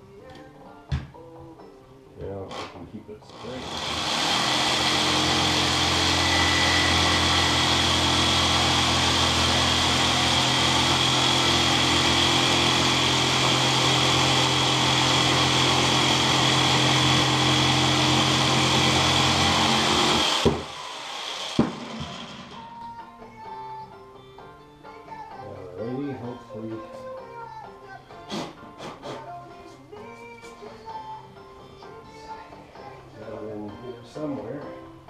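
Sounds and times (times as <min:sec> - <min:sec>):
jigsaw cutting plastic pipe: 0:02.5 - 0:22.7.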